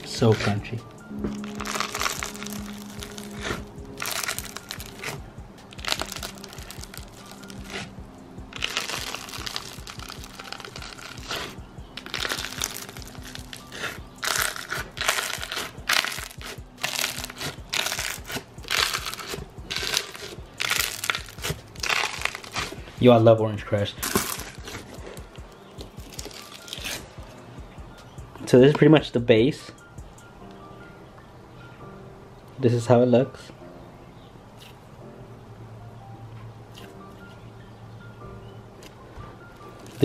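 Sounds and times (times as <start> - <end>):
soft background music: 0.0 - 40.0
slime crackling and crunching: 1.3 - 23.0, 24.0 - 27.2.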